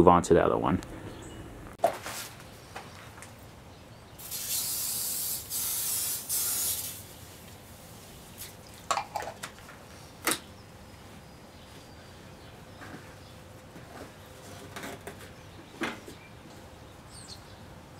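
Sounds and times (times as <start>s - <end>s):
aerosol spray hissing: 4.2s - 7.0s.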